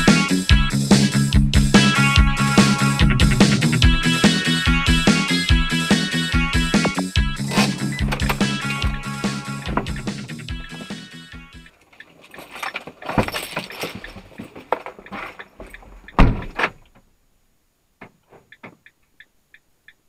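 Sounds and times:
rattling and knocking in vehicle cab: 0:06.6 - 0:11.0, 0:13.0 - 0:16.9
turn signal relay ticking: 0:14.0 - 0:17.1, 0:18.5 - 0:20.0.

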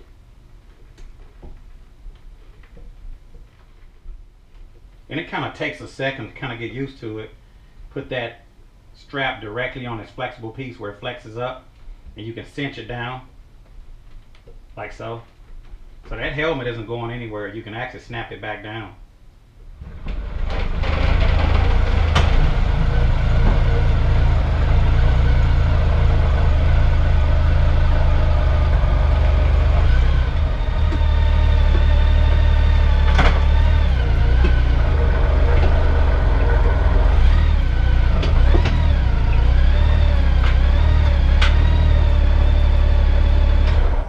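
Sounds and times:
motorcycle engine droning: 0:19.8 - 0:44.0.

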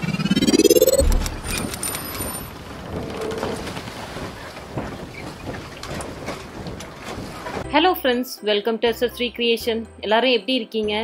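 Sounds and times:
noisy rush: 0:00.0 - 0:02.5
low bass hit: 0:00.3 - 0:01.7
scattered clicks: 0:00.7 - 0:02.4.

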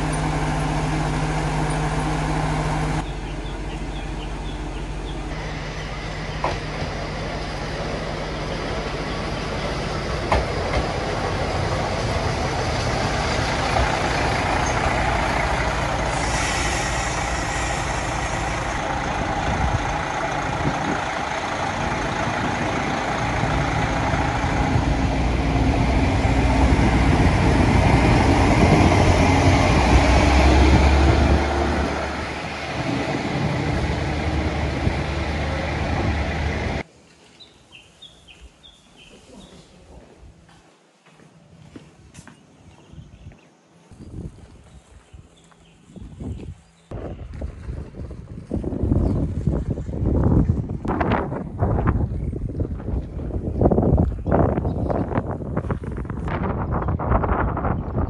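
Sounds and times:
diesel railcar engines rumbling: 0:00.0 - 0:36.9, 0:42.0 - 0:58.0
engine revving: 0:05.4 - 0:36.8
air hiss: 0:16.0 - 0:18.8
faint footsteps: 0:39.1 - 0:49.8.

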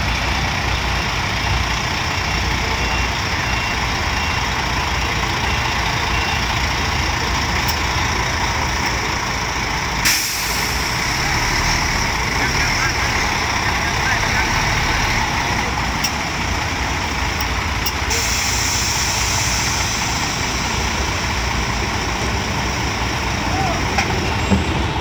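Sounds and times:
diesel bus engine running: 0:00.0 - 0:25.0
air brakes hissing: 0:10.0 - 0:11.0, 0:17.8 - 0:21.2.

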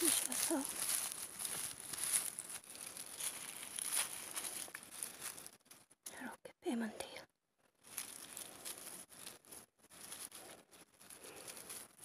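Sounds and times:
rustling of dry pine needles: 0:00.0 - 0:06.3, 0:07.7 - 0:12.0.

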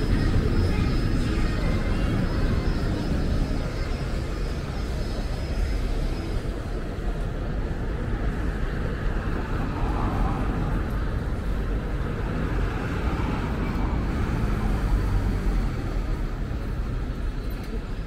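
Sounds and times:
cars driving past: 0:07.6 - 0:18.0.

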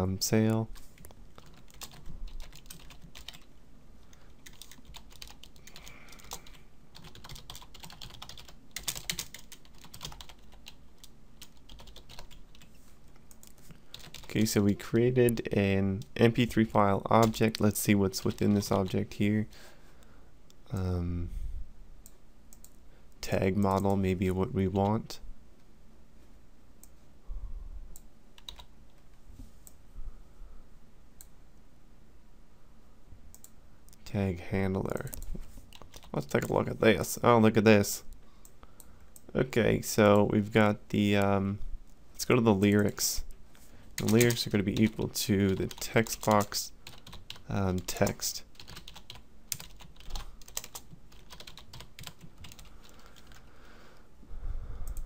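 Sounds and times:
faint low rumble: 0:20.3 - 0:28.4
keyboard keystrokes: 0:48.6 - 0:53.4.

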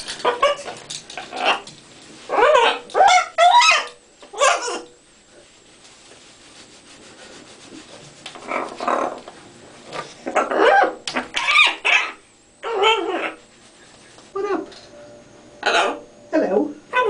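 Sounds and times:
parrot babbling calls: 0:01.3 - 0:01.7, 0:02.3 - 0:04.9, 0:10.4 - 0:13.4, 0:15.6 - 0:16.0.

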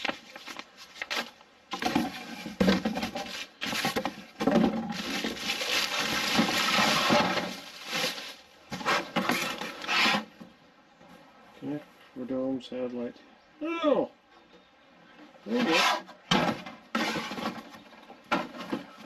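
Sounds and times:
plastic bag rustling: 0:00.0 - 0:10.2.

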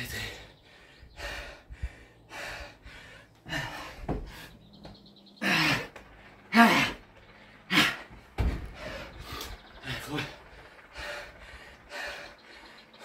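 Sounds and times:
man gasping and breathing hard: 0:00.0 - 0:04.7, 0:05.4 - 0:13.0
body thudding on wooden board: 0:04.0 - 0:04.9, 0:08.1 - 0:08.8.

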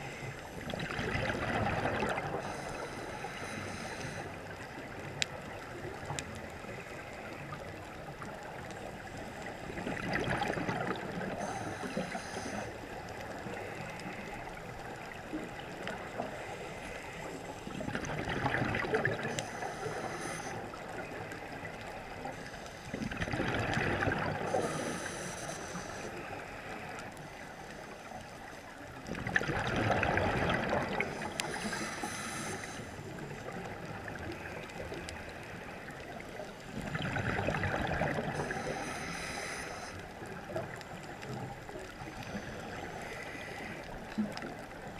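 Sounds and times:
regulator inhale hiss: 0:00.0 - 0:00.6, 0:02.3 - 0:04.8, 0:11.3 - 0:15.1, 0:16.0 - 0:17.7, 0:19.2 - 0:23.0, 0:24.4 - 0:28.7, 0:31.0 - 0:33.4, 0:38.3 - 0:40.5, 0:42.0 - 0:44.0
exhaled bubbles underwater: 0:00.0 - 0:02.9, 0:08.1 - 0:12.2, 0:17.6 - 0:25.2, 0:29.0 - 0:32.2, 0:32.9 - 0:39.5
steady underwater hiss: 0:00.0 - 0:44.9.

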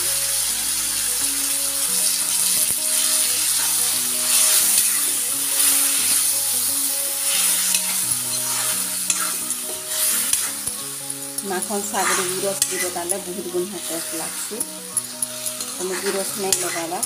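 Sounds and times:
faint background melody: 0:00.0 - 0:17.0
vegetables sizzling in oil: 0:00.0 - 0:17.0
spatula scraping pan: 0:02.9 - 0:06.3, 0:07.1 - 0:10.8, 0:11.4 - 0:17.0.

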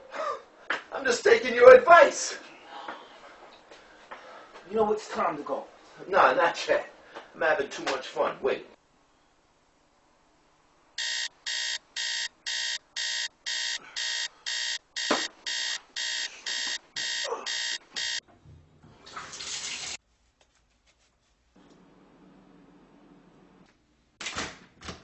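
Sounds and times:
alarm clock beeping: 0:11.0 - 0:18.2.

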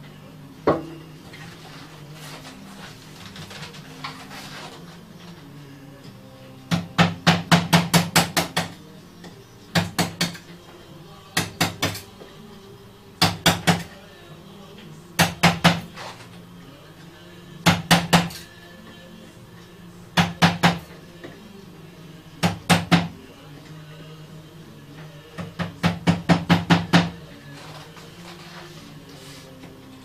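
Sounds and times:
wooden mallet knocking on wood: 0:00.7 - 0:00.9, 0:06.7 - 0:08.8, 0:25.4 - 0:27.2.

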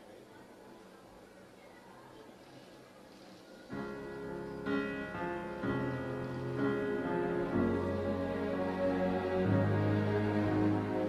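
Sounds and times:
slow instrumental music: 0:03.8 - 0:11.0.

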